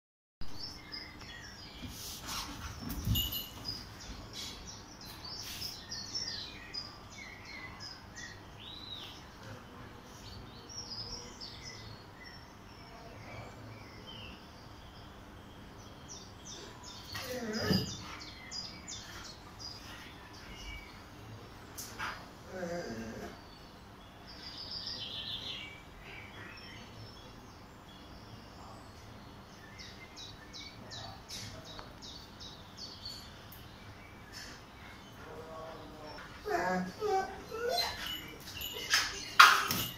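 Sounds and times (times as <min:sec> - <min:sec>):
small birds chirping: 0:00.4 - 0:39.9.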